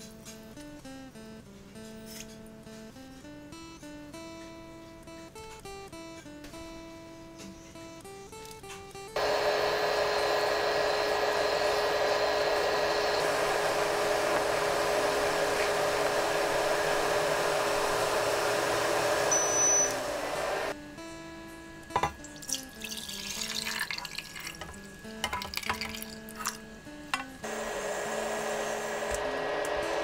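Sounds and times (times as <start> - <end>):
liquid heating in a wok: 9.2 - 20.8.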